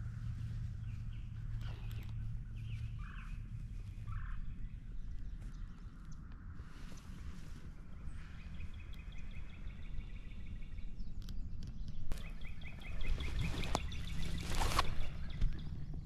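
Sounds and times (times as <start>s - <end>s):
rustling in grass: 0.0s - 9.4s, 12.1s - 15.6s
low wind rumble: 0.0s - 16.0s
songbird trilling: 0.8s - 5.5s, 8.2s - 15.8s.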